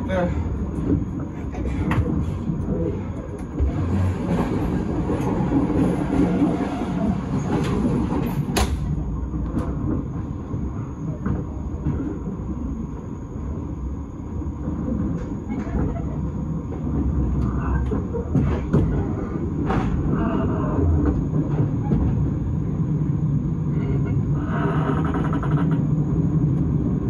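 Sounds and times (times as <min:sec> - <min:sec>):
train rumble: 0:00.0 - 0:27.0.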